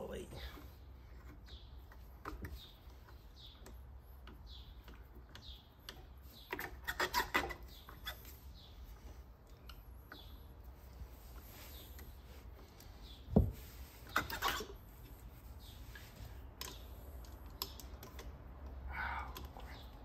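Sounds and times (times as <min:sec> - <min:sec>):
hand tool scraping and clicking: 0:01.2 - 0:08.4, 0:14.0 - 0:14.8.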